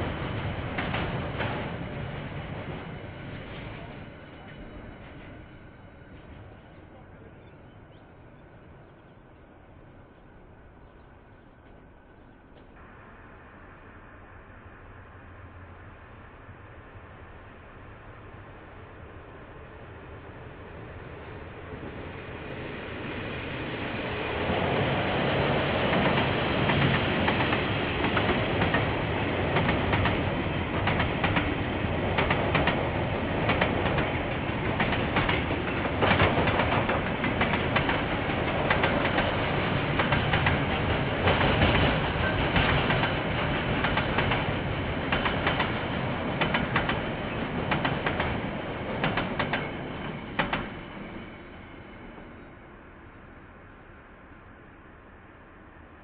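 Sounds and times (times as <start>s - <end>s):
freight train wheels clacking: 0.0s - 5.6s, 24.5s - 51.3s.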